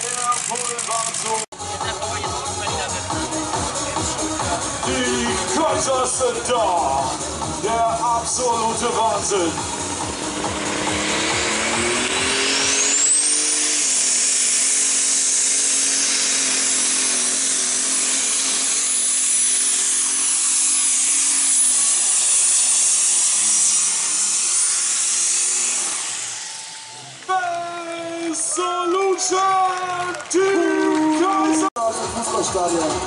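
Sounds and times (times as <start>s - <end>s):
tractor engine at full throttle: 0.0s - 27.4s.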